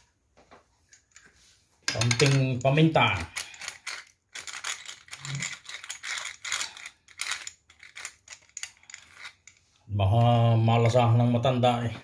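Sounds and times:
pepper grains rattling: 1.9s - 9.5s.

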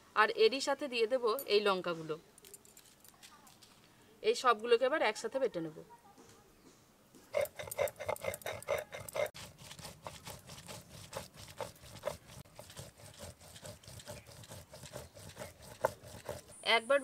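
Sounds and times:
spices ground by hand: 7.3s - 16.6s.

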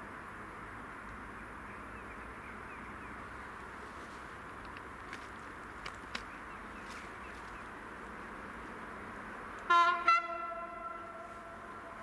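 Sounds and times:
steady low hiss: 0.0s - 12.0s
train horn blasts: 9.7s - 12.0s.

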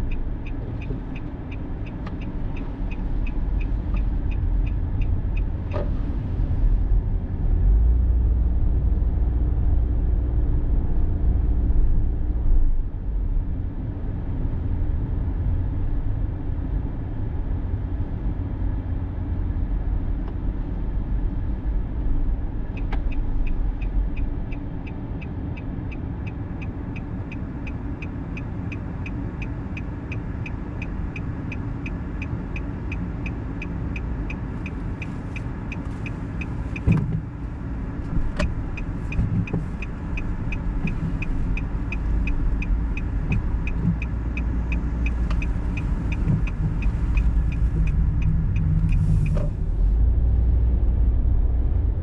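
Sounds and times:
turn signal ticking: 0.0s - 6.6s, 22.6s - 49.7s
tyre and road rumble: 33.2s - 52.0s.

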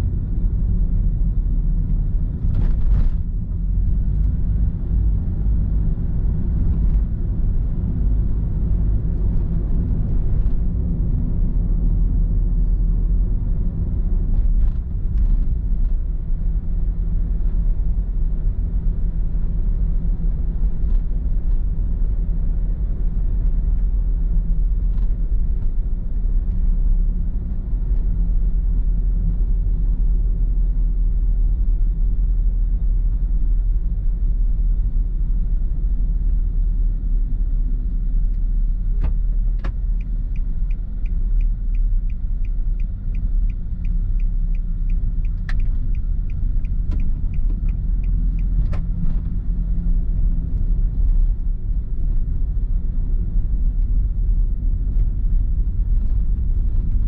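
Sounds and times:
car road and engine rumble: 0.0s - 57.0s
sharp clicks: 39.6s - 48.8s.

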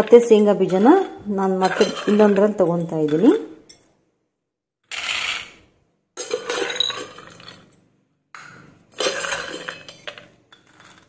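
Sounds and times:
peanuts rattling against steel: 0.0s - 3.4s
metal tumbler clinking: 0.0s - 3.8s, 6.2s - 7.6s.

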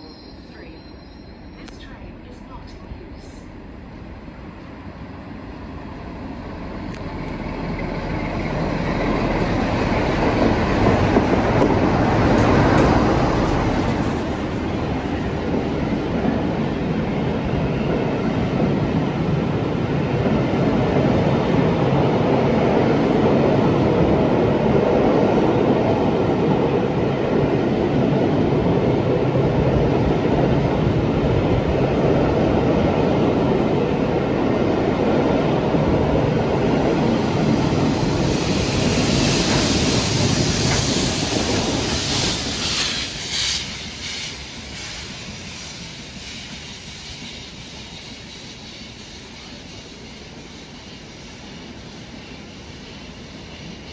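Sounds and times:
train wheels rumbling on rails: 0.0s - 53.9s
hiss: 37.2s - 53.9s.

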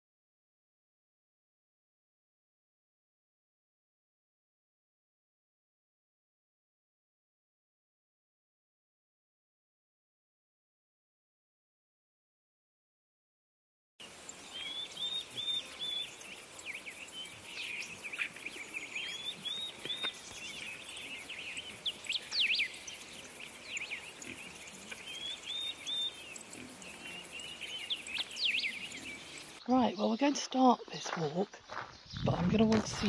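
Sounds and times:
faint steady hiss: 14.0s - 29.6s
small birds singing and chirping: 14.0s - 33.0s.

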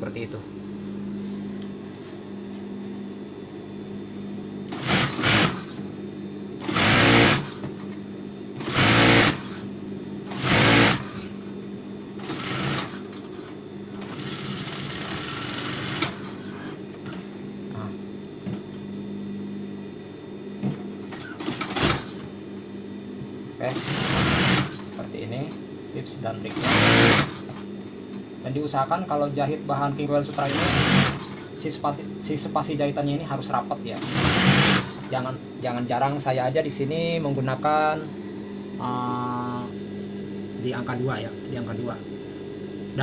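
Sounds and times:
steady hum: 0.0s - 43.0s
sewing machine stitching: 4.7s - 5.7s, 6.6s - 7.6s, 8.6s - 9.6s, 10.3s - 11.2s, 12.2s - 13.0s, 23.8s - 24.9s, 26.5s - 27.4s, 30.4s - 31.4s, 34.0s - 35.1s.

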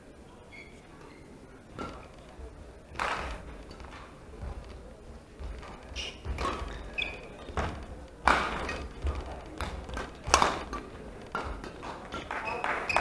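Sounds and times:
shoes squeaking on floor: 0.4s - 13.0s
rackets hitting shuttlecock: 3.0s - 4.7s, 5.4s - 13.0s.

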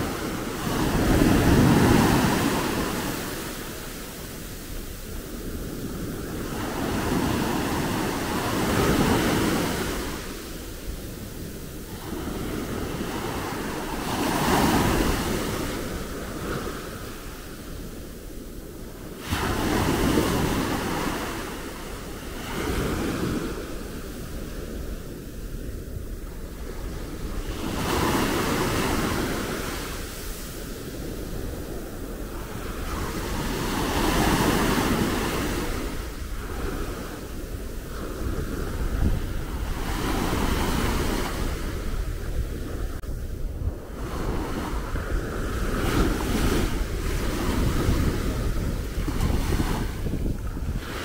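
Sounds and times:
sea waves breaking on beach: 0.0s - 51.0s
wind buffeting microphone: 0.0s - 51.0s.

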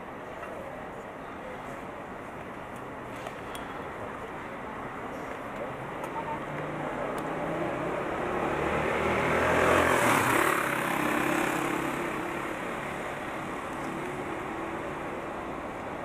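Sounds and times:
steady traffic engine hum: 0.0s - 16.0s
vehicle passing: 6.7s - 13.1s.

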